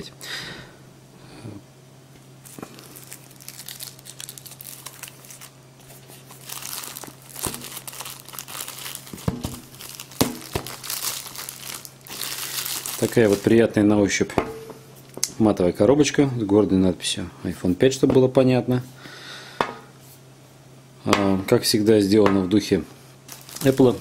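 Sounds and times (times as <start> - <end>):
plastic film crinkling: 2.4 - 13.9, 23.3 - 24.0.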